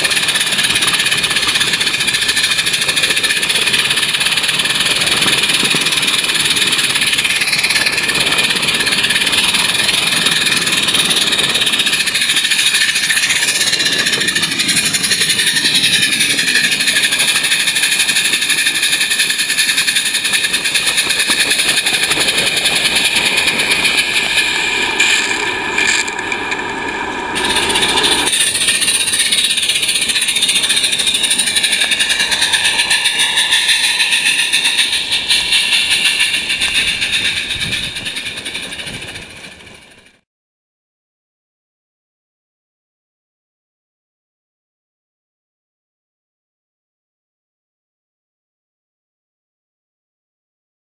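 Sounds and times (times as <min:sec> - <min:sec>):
steam hissing: 0:00.0 - 0:40.2
wheels running on track: 0:00.0 - 0:40.2.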